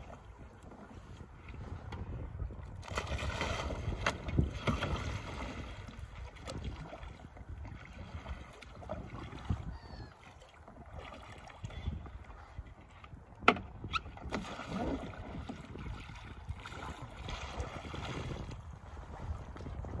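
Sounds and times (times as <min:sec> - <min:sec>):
water sloshing around kayak: 0:00.0 - 0:20.0.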